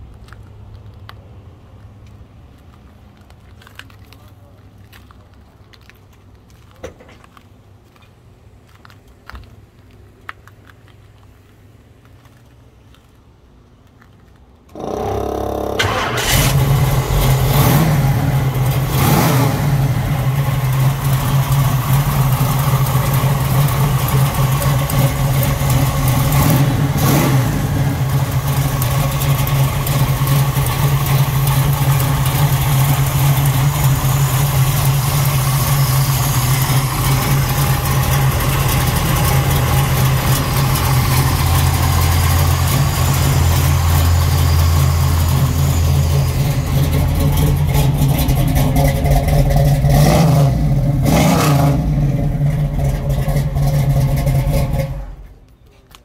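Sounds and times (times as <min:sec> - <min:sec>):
car engine cranking: 0:14.7 - 0:55.5
car engine idling: 0:14.7 - 0:55.5
engine revving: 0:14.8 - 0:55.2.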